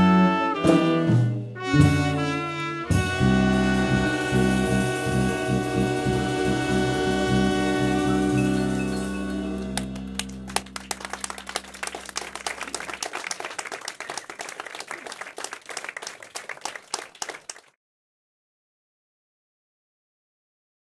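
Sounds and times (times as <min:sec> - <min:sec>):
jazz band chord ringing out: 0:00.6 - 0:10.7
audience applause: 0:09.8 - 0:17.8.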